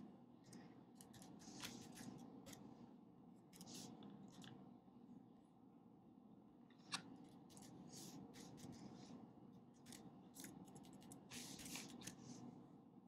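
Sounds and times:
low room hum: 0:00.0 - 0:13.0
pen scratching on paper: 0:01.0 - 0:02.2, 0:11.3 - 0:12.3.

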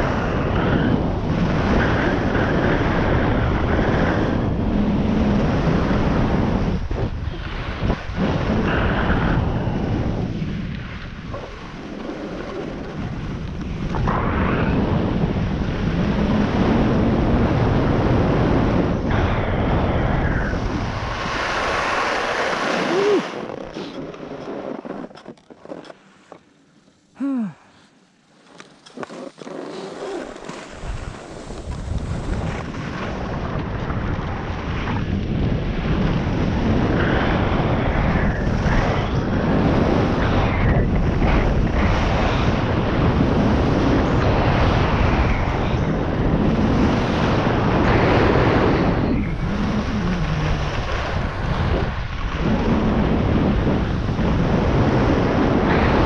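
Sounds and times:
wind buffeting microphone: 0:00.0 - 0:25.8, 0:29.1 - 0:56.0
ski edges scraping snow: 0:21.2 - 0:27.0, 0:27.8 - 0:33.0.

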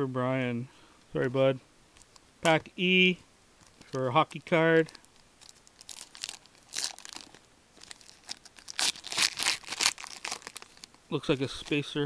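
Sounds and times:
wrapper tearing and crinkling: 0:03.7 - 0:11.9.

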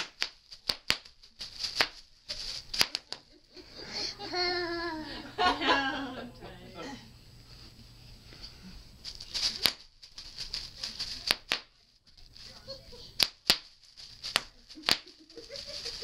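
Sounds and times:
bubble wrap popping: 0:00.0 - 0:03.5, 0:09.0 - 0:16.0
plastic crinkling: 0:00.0 - 0:03.5, 0:09.0 - 0:16.0.

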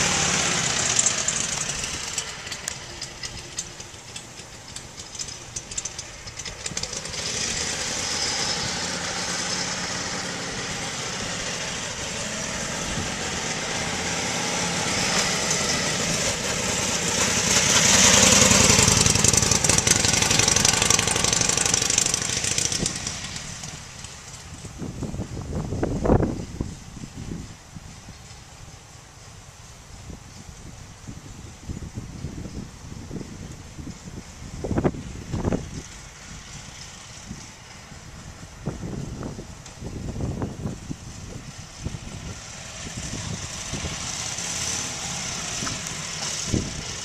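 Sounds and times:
motorcycle exhaust riding by: 0:00.0 - 0:28.5, 0:29.9 - 0:47.0.

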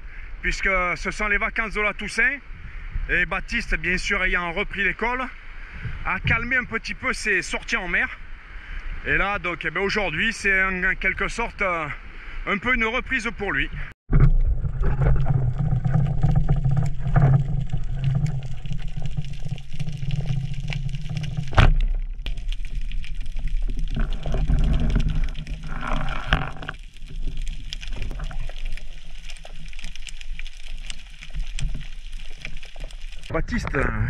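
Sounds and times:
low underwater rumble: 0:14.1 - 0:33.3
faint crackling clicks: 0:14.8 - 0:33.9.

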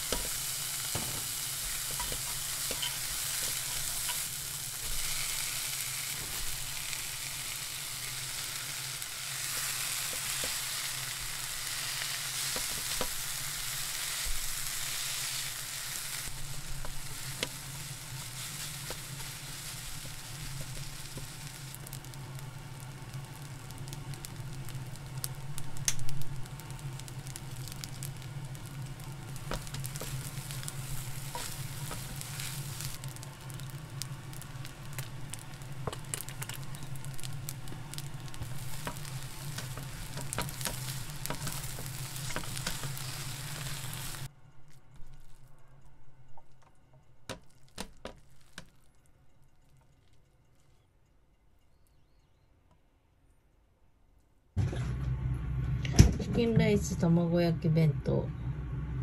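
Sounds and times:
food sizzling in frying pan: 0:00.0 - 0:44.3
low hum: 0:54.6 - 0:59.0.

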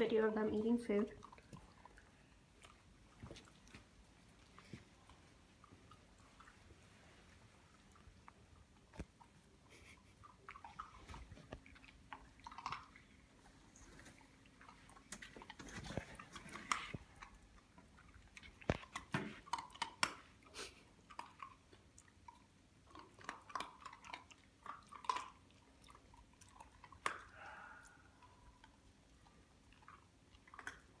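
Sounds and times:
puppies crunching dry kibble: 0:10.6 - 0:27.4.

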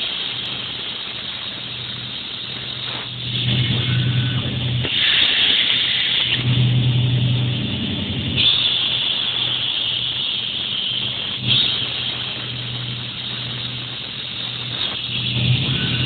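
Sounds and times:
high cutting hiss: 0:00.0 - 0:16.0
motor humming: 0:02.2 - 0:08.9, 0:10.9 - 0:16.0.

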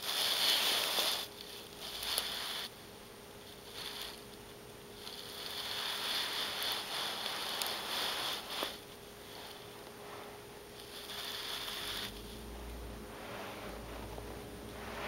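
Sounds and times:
fingers scratching on carpet: 0:00.0 - 0:02.7, 0:03.6 - 0:04.2, 0:05.0 - 0:12.5.

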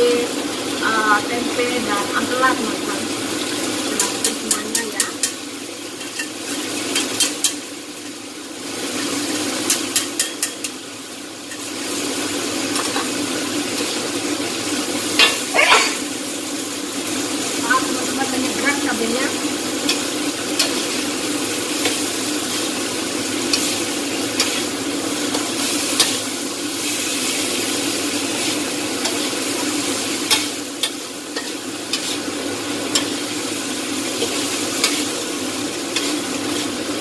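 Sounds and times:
food sizzling in a wok: 0:00.0 - 0:37.0
spatula clinking against pan: 0:09.7 - 0:10.8
metal spatula scraping a pan: 0:28.3 - 0:32.3, 0:34.1 - 0:35.2, 0:35.9 - 0:36.8.

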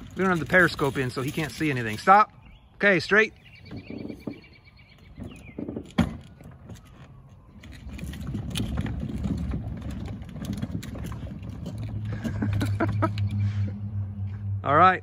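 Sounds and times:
model tank tracks clattering: 0:00.0 - 0:02.3, 0:05.1 - 0:13.4.

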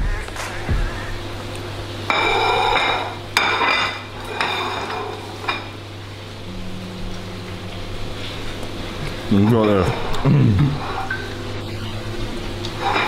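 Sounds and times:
steady low hum: 0:00.0 - 0:13.0
plates clattering on countertop: 0:02.1 - 0:05.7, 0:12.8 - 0:13.0.

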